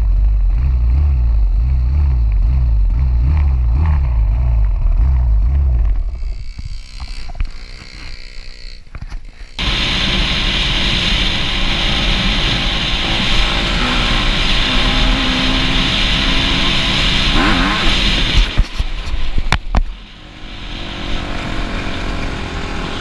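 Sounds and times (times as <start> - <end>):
dirt bike engine revving: 0.0 - 18.6
distant dirt bike engine: 0.0 - 19.0
wind rush at speed: 9.6 - 23.0.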